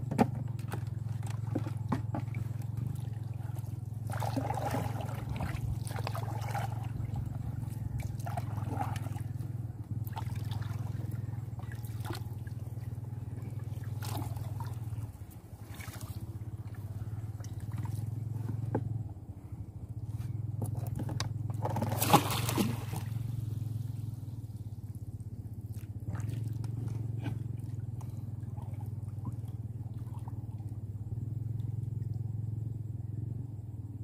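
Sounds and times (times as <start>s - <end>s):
steady low hum: 0.0s - 34.0s
water trickling and splashing: 0.4s - 18.3s.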